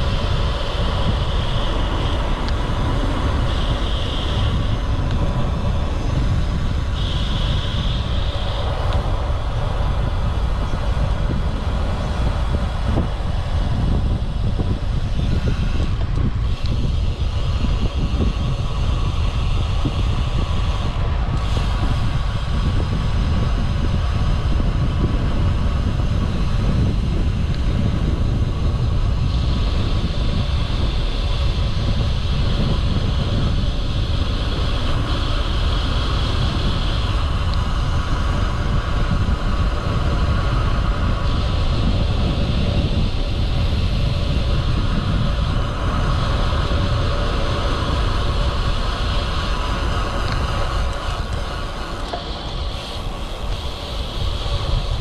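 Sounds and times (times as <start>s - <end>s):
high hiss: 0.0s - 55.0s
wind rumbling on microphone: 0.0s - 55.0s.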